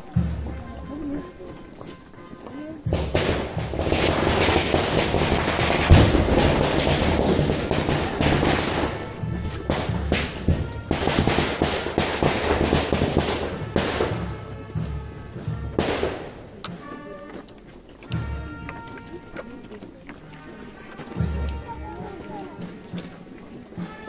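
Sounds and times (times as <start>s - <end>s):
band music: 0.0s - 24.0s
firecrackers crackling bangs: 2.9s - 17.1s.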